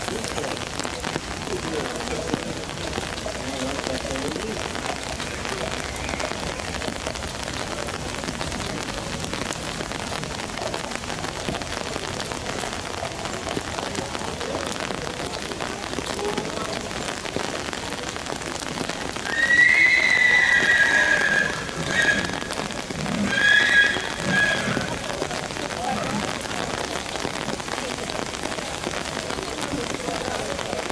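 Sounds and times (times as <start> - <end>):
rain on wet ground: 0.0 - 30.9
horse whinnying: 19.3 - 22.4, 23.0 - 25.0.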